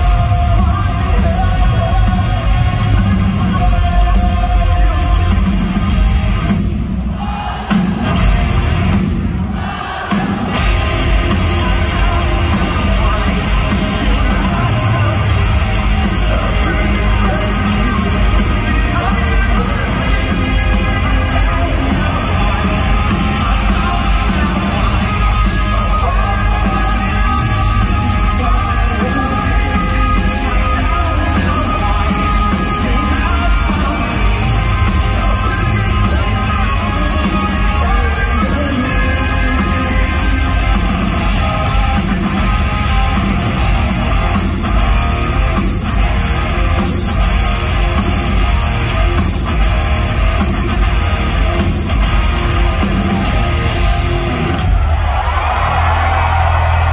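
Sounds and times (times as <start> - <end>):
bass guitar: 0.0 - 6.6, 10.5 - 56.9
distorted electric guitars: 0.0 - 7.0, 7.7 - 9.4, 10.1 - 56.9
drums: 0.0 - 56.9
person singing: 10.8 - 43.8.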